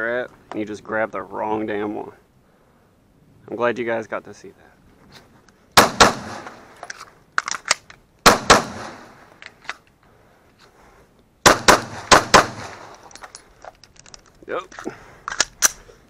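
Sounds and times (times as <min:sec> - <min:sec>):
pistol shots: 0:05.8 - 0:06.7, 0:08.2 - 0:09.2, 0:11.4 - 0:13.0.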